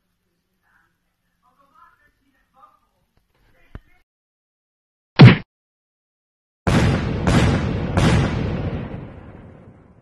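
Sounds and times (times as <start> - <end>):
faint background hiss: 0.0 - 4.0.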